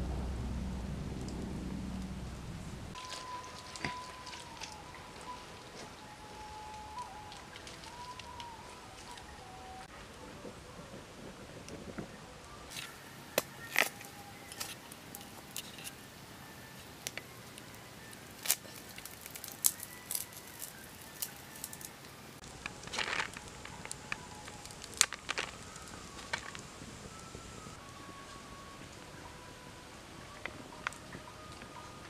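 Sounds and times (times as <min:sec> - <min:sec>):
bamboo cracking and splintering: 0:02.9 - 0:09.4, 0:12.7 - 0:26.7
bamboo tearing: 0:12.7 - 0:16.1, 0:16.7 - 0:26.6.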